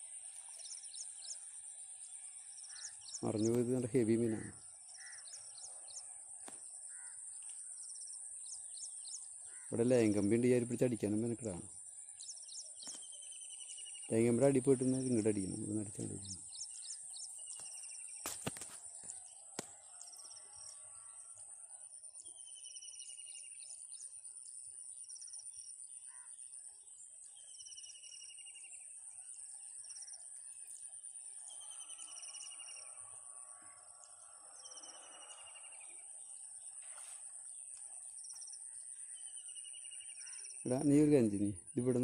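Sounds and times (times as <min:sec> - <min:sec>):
high-pitched insect buzz: 0:19.4 - 0:22.0, 0:31.0 - 0:37.5.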